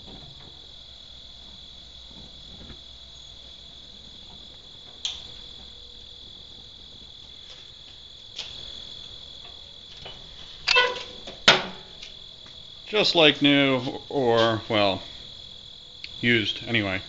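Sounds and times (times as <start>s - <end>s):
gas grill igniter clicks: 5.0s - 5.3s.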